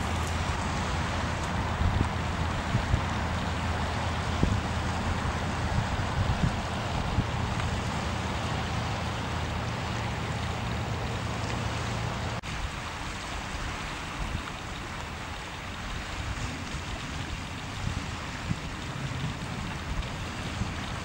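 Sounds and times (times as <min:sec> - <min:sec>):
wind on microphone: 0:00.0 - 0:08.2, 0:15.8 - 0:21.0.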